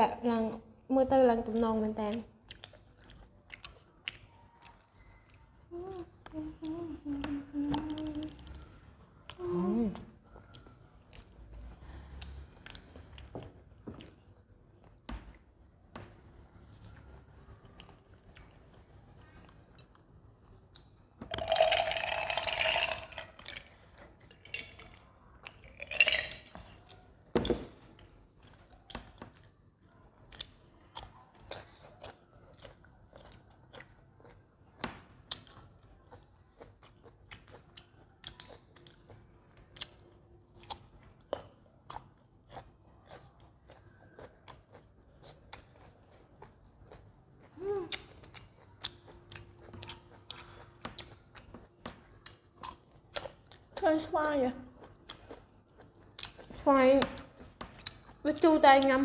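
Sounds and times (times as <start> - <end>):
close chewing and biting: 2.0 - 5.6, 16.7 - 59.0.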